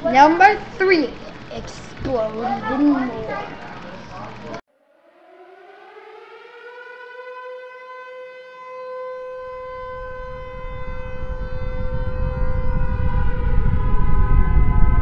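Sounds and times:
air-raid siren wailing: 0:00.0 - 0:15.0
deep rumble: 0:09.4 - 0:15.0.

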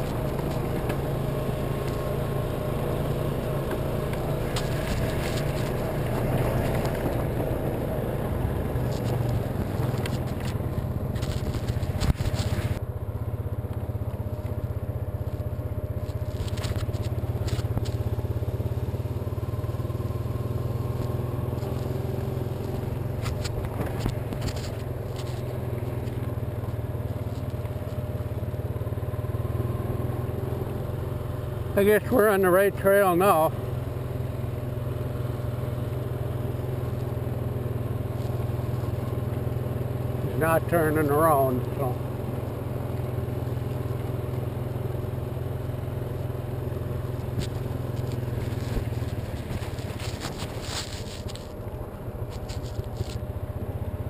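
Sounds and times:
atv engine running: 0:00.0 - 0:54.0
brush scratching windshield: 0:47.3 - 0:51.6, 0:52.2 - 0:53.2.

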